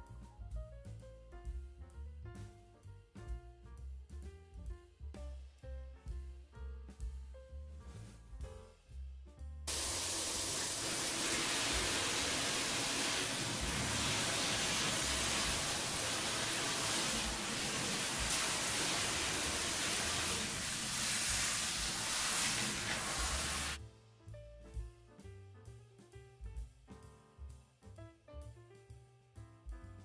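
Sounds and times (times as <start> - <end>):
shower sprayer hissing: 9.7 - 23.8.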